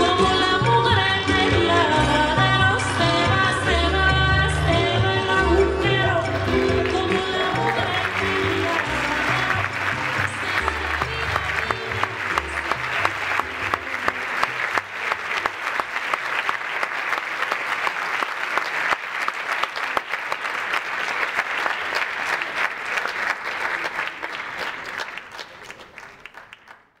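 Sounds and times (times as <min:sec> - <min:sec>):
music: 0:00.0 - 0:14.9
audience applauding: 0:04.8 - 0:27.0.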